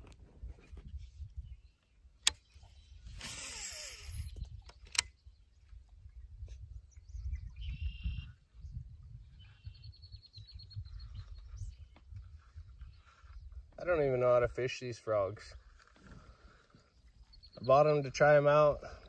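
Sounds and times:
fishing line whoosh: 0:02.6 - 0:04.4
fishing reel whirring: 0:03.0 - 0:05.1
fishing reel click: 0:03.2 - 0:05.1
birds calling: 0:09.2 - 0:13.8, 0:15.4 - 0:19.0.

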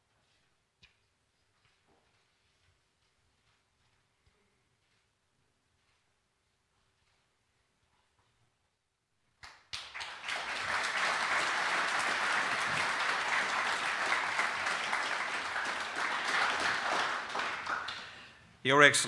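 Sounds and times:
audience applause: 0:09.8 - 0:18.3.

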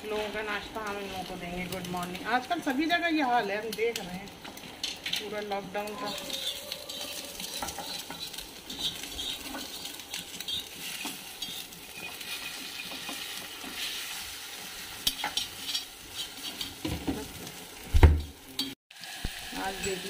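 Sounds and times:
egg sizzling on griddle: 0:00.0 - 0:20.0
metal spoon scraping pan: 0:03.9 - 0:17.4.

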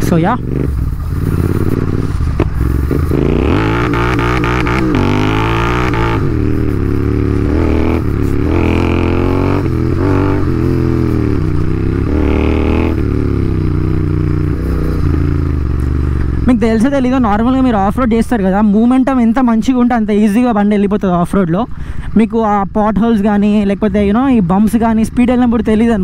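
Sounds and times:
motorcycle engine revving: 0:00.0 - 0:18.8.

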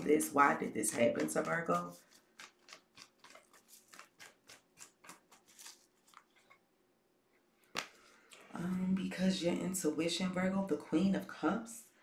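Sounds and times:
cards being shuffled: 0:00.7 - 0:06.6.

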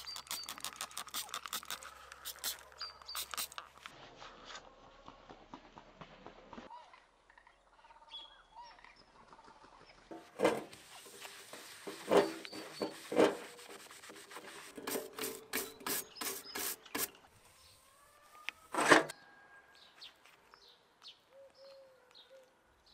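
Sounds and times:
stiff brush scratching: 0:00.0 - 0:03.9, 0:10.1 - 0:17.2
sponge scrubbing metal kettle: 0:10.1 - 0:17.1.

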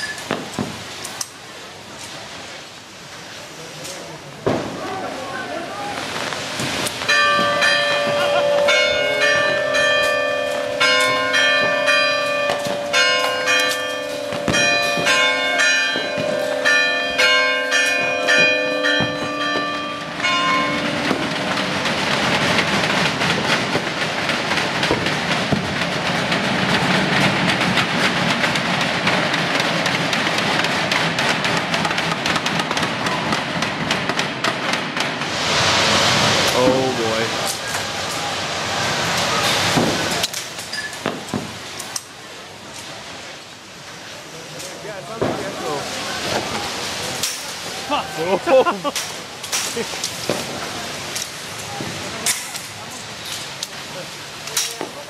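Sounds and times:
fireworks crackling hiss: 0:00.0 - 0:55.0
church bells ringing: 0:07.0 - 0:22.8.

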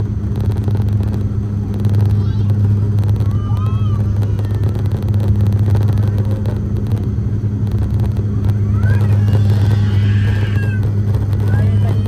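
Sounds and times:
propeller engine drone: 0:00.0 - 0:12.0.

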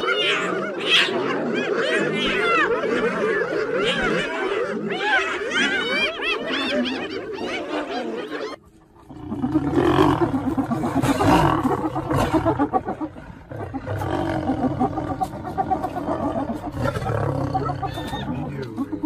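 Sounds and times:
lion growling: 0:08.6 - 0:19.0.

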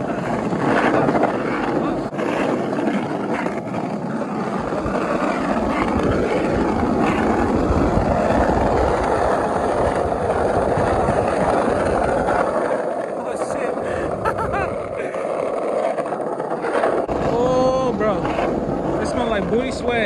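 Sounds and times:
bicycle tyres rolling on road: 0:00.0 - 0:20.0
wind buffeting microphone: 0:00.0 - 0:20.0
low rumble: 0:13.4 - 0:15.1, 0:17.0 - 0:20.0.

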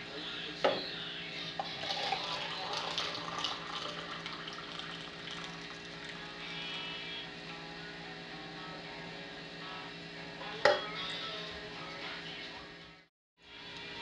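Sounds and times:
water pouring into mug: 0:01.6 - 0:06.4.

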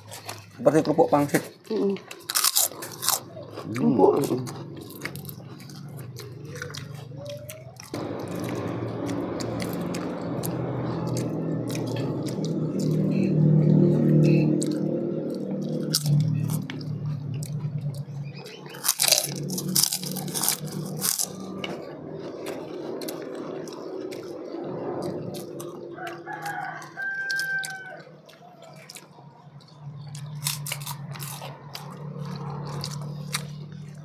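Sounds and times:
people eating with spoon clicks: 0:00.0 - 0:13.2, 0:14.2 - 0:24.4, 0:25.4 - 0:34.0
rooster crowing: 0:25.1 - 0:29.0.

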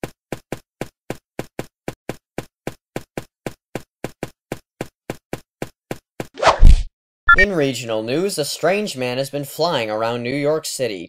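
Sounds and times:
quick tapping footsteps: 0:00.0 - 0:06.3.

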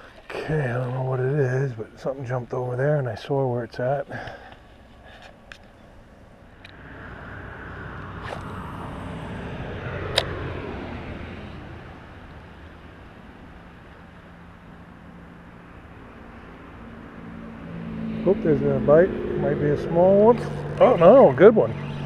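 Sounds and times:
car passing by: 0:06.5 - 0:22.0.

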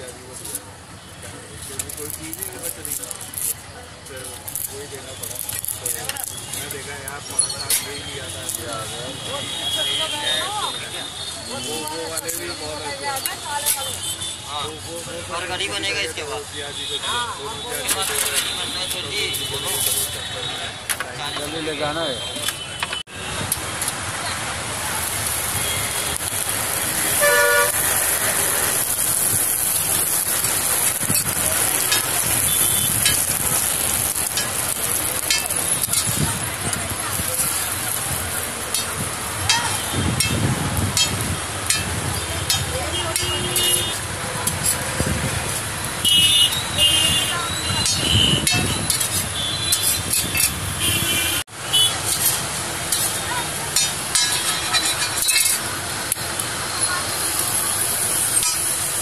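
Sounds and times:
street noise: 0:00.0 - 0:59.0
food sizzling on a griddle: 0:00.2 - 0:20.4, 0:23.2 - 0:59.0
vehicle horn toot: 0:27.0 - 0:27.8, 0:46.0 - 0:50.0, 0:50.8 - 0:52.0
car horn toots: 0:27.2 - 0:27.8
spatula clicking on griddle: 0:29.0 - 0:43.7, 0:52.1 - 0:56.2, 0:58.4 - 0:58.8.

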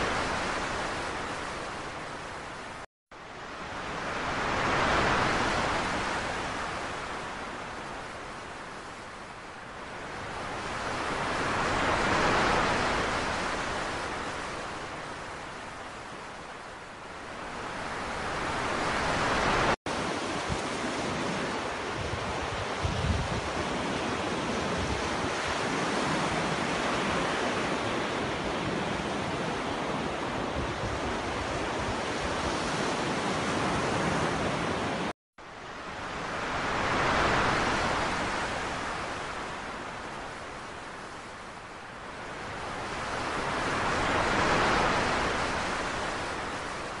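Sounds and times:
waves breaking: 0:00.0 - 0:35.1, 0:35.7 - 0:47.0
small waves washing on shore: 0:00.0 - 0:47.0.

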